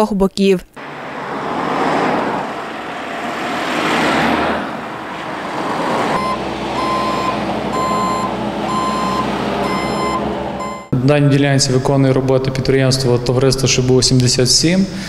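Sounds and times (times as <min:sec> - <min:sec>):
cars passing: 0:00.8 - 0:11.0
diesel engine running: 0:00.8 - 0:11.0
reversing alarm beeping: 0:06.1 - 0:11.0.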